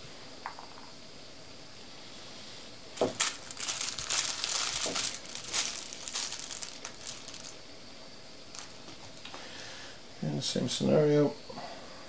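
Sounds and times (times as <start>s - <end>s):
aluminium foil crinkling: 3.0s - 7.6s, 8.5s - 9.1s.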